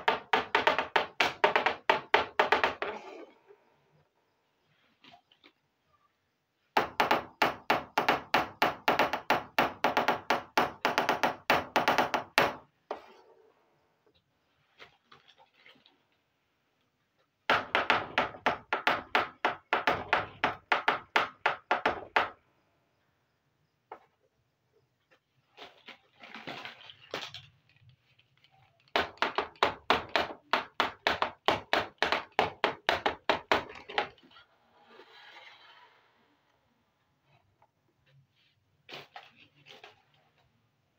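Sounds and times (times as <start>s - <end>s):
sharp tapping knocks: 0.0s - 2.9s, 6.8s - 12.6s, 17.5s - 22.4s
fingers tapping on hollow plastic: 6.8s - 12.6s.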